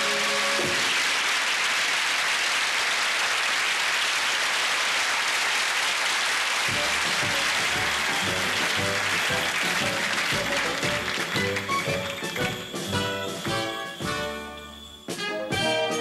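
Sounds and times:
audience applauding: 0:00.0 - 0:14.6
brass band playing: 0:06.7 - 0:16.0.

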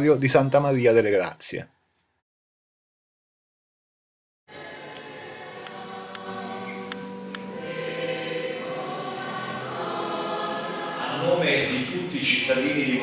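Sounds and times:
church choir singing: 0:00.0 - 0:01.1, 0:04.5 - 0:13.0.

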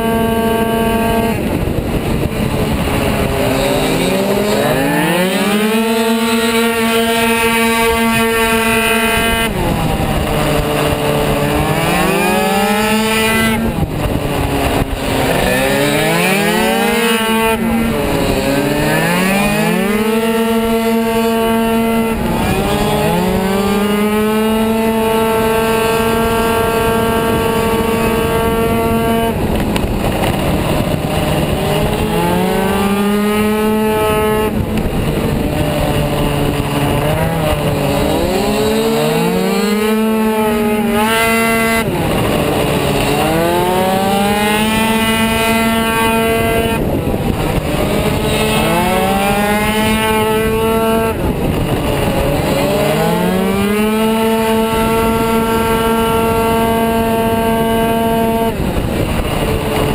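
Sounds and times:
scooter engine racing: 0:00.0 - 0:59.9.

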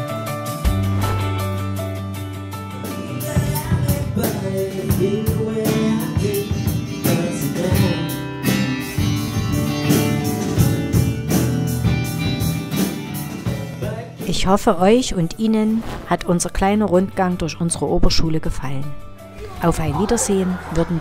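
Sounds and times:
guitar music: 0:00.0 - 0:20.8
steady drum beat: 0:00.6 - 0:05.3, 0:09.0 - 0:13.9.

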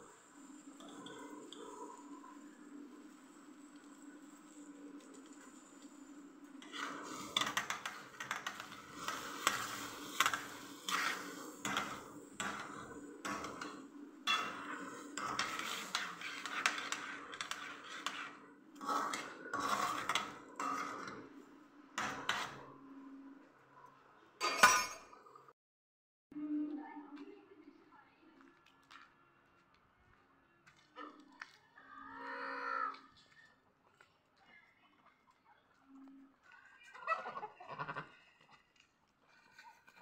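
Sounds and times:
spoon stirring seeds in metal pan: 0:03.6 - 0:21.2.

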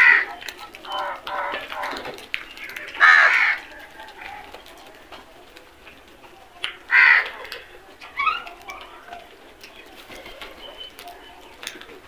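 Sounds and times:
crows cawing: 0:00.0 - 0:03.7, 0:06.9 - 0:07.5
beaks pecking on concrete: 0:00.0 - 0:12.0.

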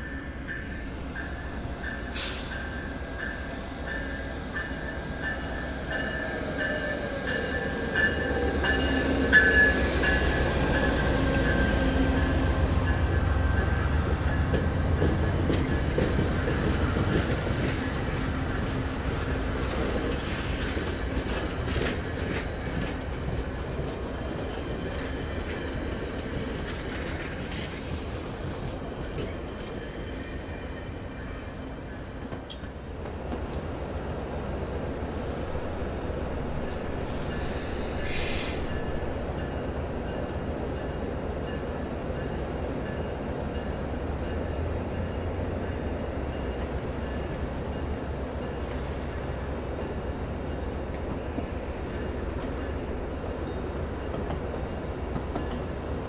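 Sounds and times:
train rumbling on rails: 0:00.0 - 0:56.0
high wheel squeals: 0:29.3 - 0:32.9.

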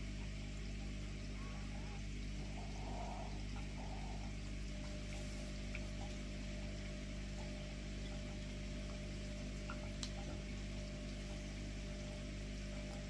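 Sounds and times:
low electrical hum: 0:00.0 - 0:13.0
tiny faint ticks: 0:03.3 - 0:13.0.

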